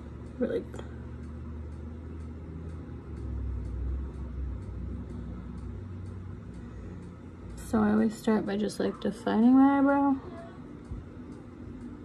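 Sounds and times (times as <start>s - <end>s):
deep steady rumble: 0.0s - 12.0s
faint ticks: 0.1s - 8.2s.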